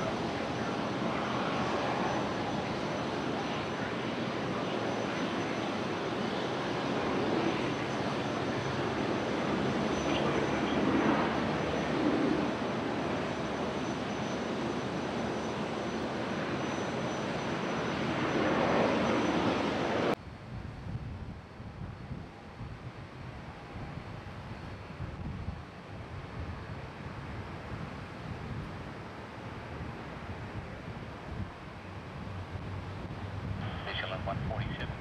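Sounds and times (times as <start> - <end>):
jet engine roar: 0.0 - 20.2, 31.7 - 35.0.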